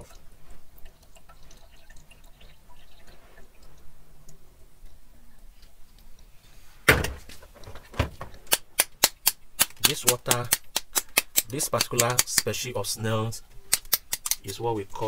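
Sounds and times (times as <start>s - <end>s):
snail shells knocking together: 8.5s - 12.5s, 13.7s - 14.6s.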